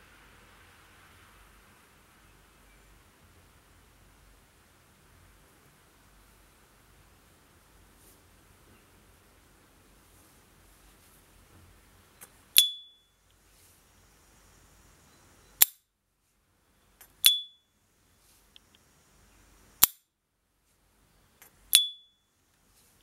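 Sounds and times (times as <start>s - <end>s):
lighter lid opening ping: 21.8s - 22.0s.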